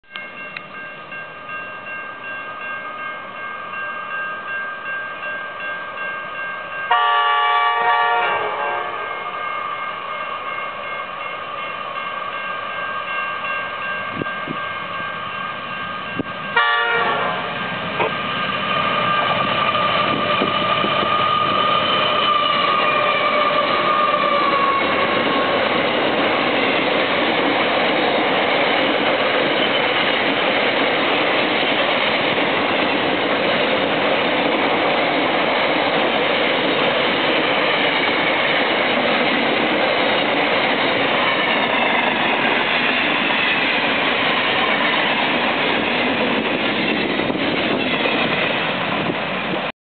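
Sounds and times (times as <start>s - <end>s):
level crossing bells ringing: 0.1s - 7.2s
locomotive chime horn: 0.2s - 18.2s
locomotive engines and wheels: 9.4s - 49.7s.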